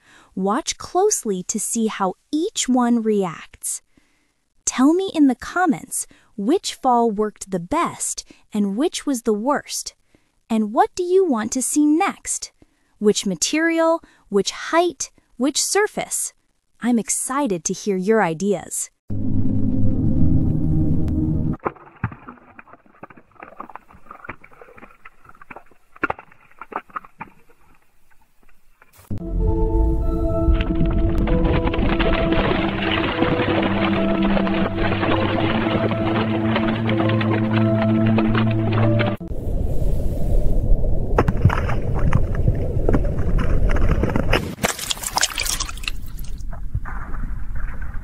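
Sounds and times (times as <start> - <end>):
steady low rumble: 19.1 - 21.6, 29.0 - 43.8
tomato bursting wet splatter: 44.6 - 46.4.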